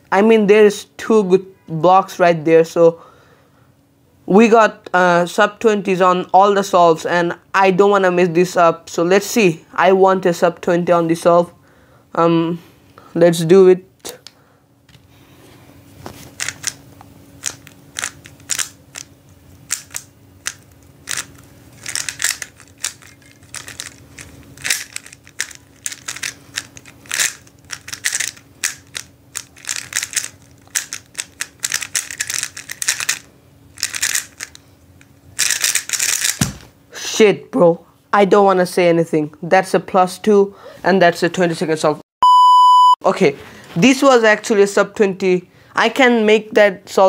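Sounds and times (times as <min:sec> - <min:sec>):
faint hum: 0:00.0 - 0:40.9, 0:41.8 - 0:47.0
plastic puzzle cube clicking: 0:17.4 - 0:19.1, 0:19.7 - 0:24.0, 0:24.6 - 0:33.2, 0:33.8 - 0:34.6, 0:35.4 - 0:36.4.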